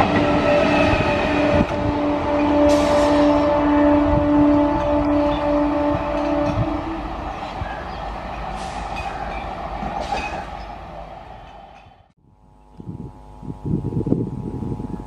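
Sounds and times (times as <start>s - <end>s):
train horn: 0.0s - 7.8s
train rumble and wheel clatter: 0.0s - 12.2s.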